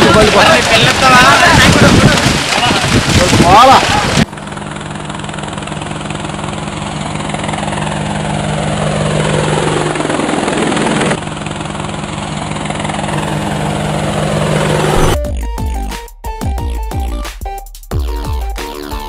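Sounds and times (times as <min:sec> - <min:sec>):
drone rotors buzzing: 0:12.3 - 0:15.6
falling pitch sweep: 0:13.0 - 0:15.3.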